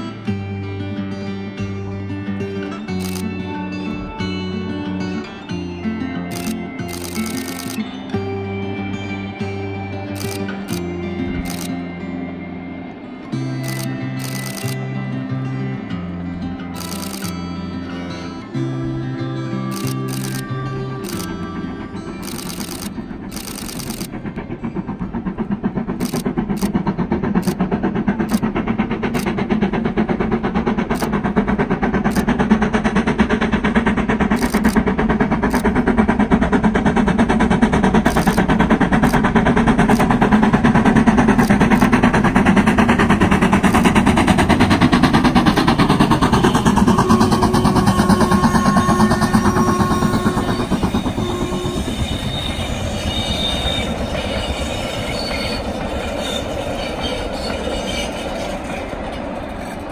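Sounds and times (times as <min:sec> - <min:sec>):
rumble of train coaches: 0:00.0 - 0:59.9
steam locomotive exhaust beats: 0:00.0 - 0:59.9
high squealing tones: 0:45.4 - 0:59.4.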